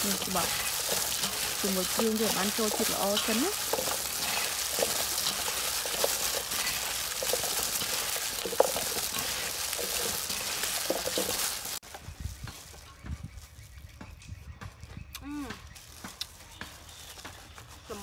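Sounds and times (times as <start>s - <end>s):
salad shreds crackling: 0.0s - 11.8s
plastic gloves crinkling: 0.0s - 13.8s, 15.7s - 18.0s.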